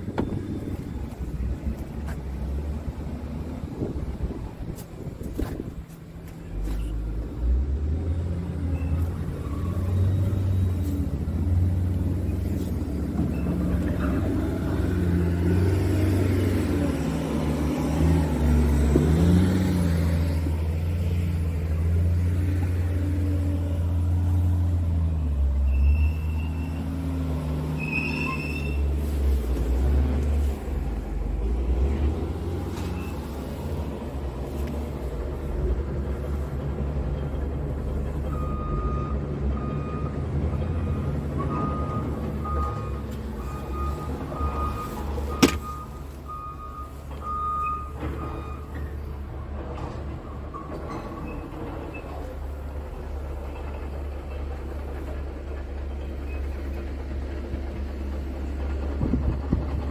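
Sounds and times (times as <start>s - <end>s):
truck diesel engine idling: 29.0s - 49.6s, 51.5s - 59.9s.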